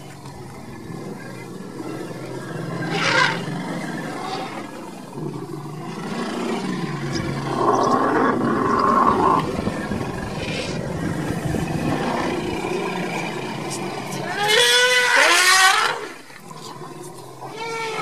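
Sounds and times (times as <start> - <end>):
lion roaring: 0.2 - 18.0.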